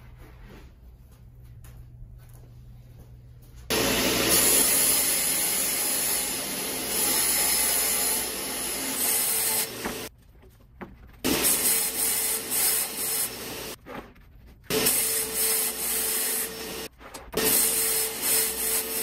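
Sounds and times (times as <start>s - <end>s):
table saw cutting: 3.7s - 10.1s, 11.3s - 13.8s, 14.7s - 19.0s.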